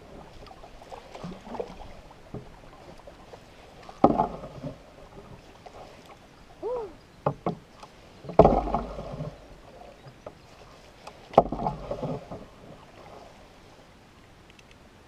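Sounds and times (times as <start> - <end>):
canoe paddle strokes in water: 0.0 - 14.3
light clicks: 14.4 - 14.8.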